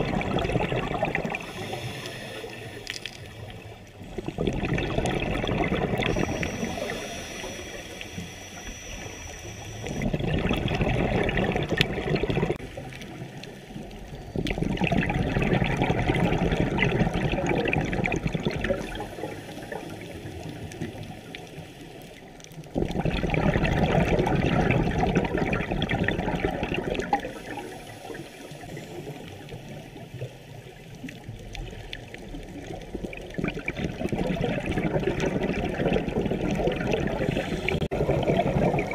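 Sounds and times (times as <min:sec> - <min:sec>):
underwater breath bubbling: 0:00.0 - 0:30.6, 0:32.6 - 0:38.9
quiet breathing: 0:01.2 - 0:04.6, 0:05.9 - 0:10.2, 0:18.8 - 0:22.8, 0:27.2 - 0:31.9, 0:37.0 - 0:37.9.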